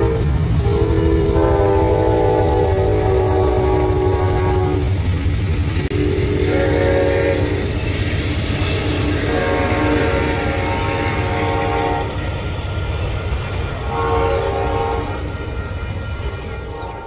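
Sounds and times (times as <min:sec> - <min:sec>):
train air horn blasts: 0:00.0 - 0:05.0, 0:05.9 - 0:07.8, 0:08.7 - 0:17.0
train rumbling on rails: 0:00.0 - 0:17.0.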